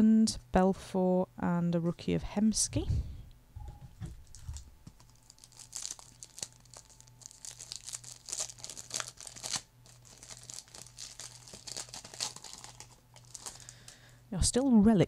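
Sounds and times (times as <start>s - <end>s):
foil wrapper crinkling and tearing: 4.2s - 14.1s.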